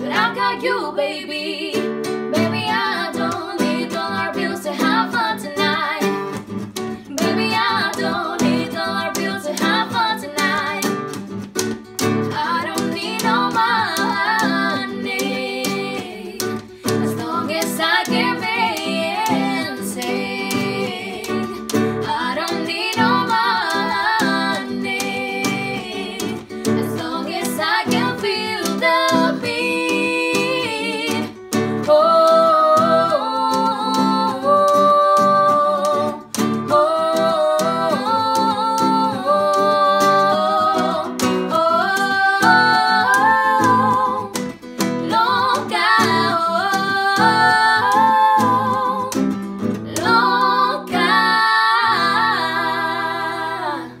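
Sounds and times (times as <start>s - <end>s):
women singing in harmony: 0.0s - 6.3s, 7.1s - 11.0s, 12.3s - 54.0s
strummed acoustic guitar: 0.0s - 54.0s.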